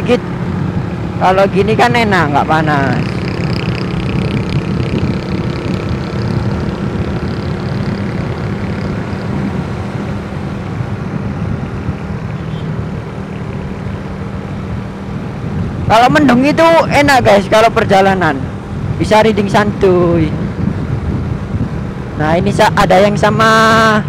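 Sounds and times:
motorcycle engine running: 0.0 - 19.0
road noise: 0.0 - 24.0.

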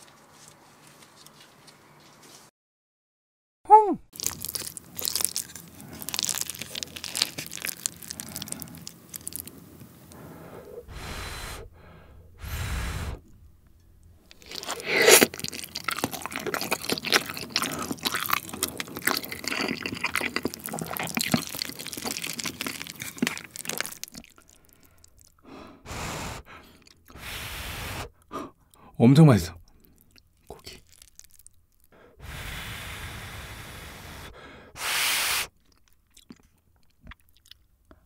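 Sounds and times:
close chewing and crunching: 4.1 - 11.0, 13.4 - 27.2, 29.6 - 32.2, 35.5 - 38.0.

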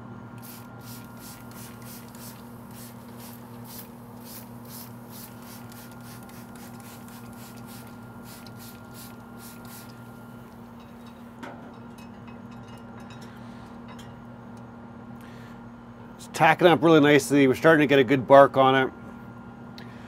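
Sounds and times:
steady low hum: 0.0 - 20.0
spray bottle squirts hissing: 0.4 - 9.9.

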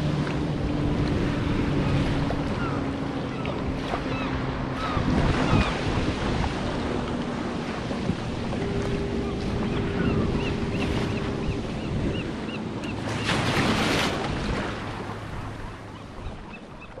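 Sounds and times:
breaking water rushing: 0.0 - 11.5
ocean swell washing: 0.0 - 17.0
wind buffeting microphone: 0.0 - 17.0.

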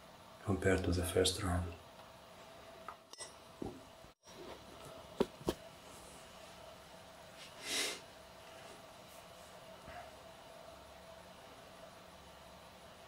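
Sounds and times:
short hiss: 7.5 - 8.0.

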